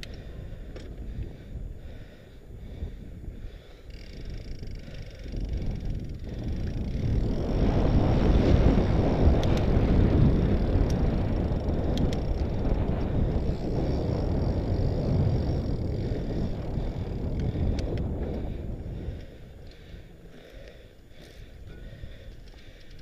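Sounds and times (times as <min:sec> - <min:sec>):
wind buffeting microphone: 0:00.0 - 0:23.0
sharp ticks: 0:08.9 - 0:18.4.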